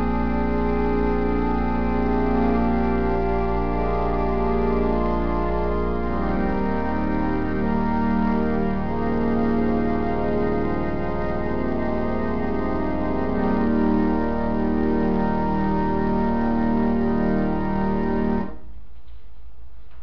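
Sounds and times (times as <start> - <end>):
organ chords: 0.0 - 18.6
low steady hum: 18.4 - 20.0.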